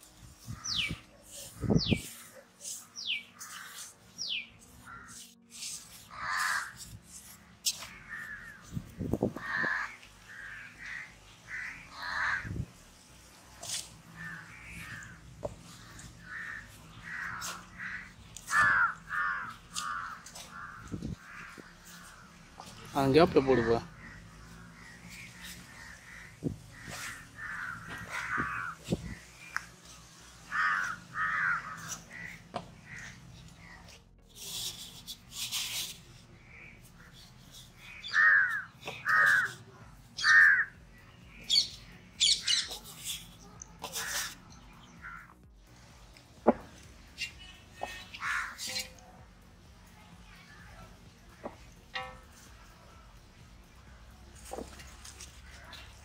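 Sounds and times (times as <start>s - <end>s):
crows cawing: 2.1s - 5.3s, 5.9s - 12.6s, 13.6s - 29.7s, 30.4s - 34.0s, 37.8s - 42.8s, 43.5s - 45.4s, 47.2s - 49.0s.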